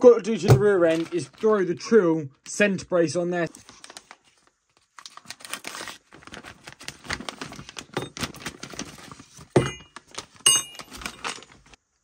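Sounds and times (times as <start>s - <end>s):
plastic bag crinkling: 0.6s - 1.6s, 3.5s - 11.8s.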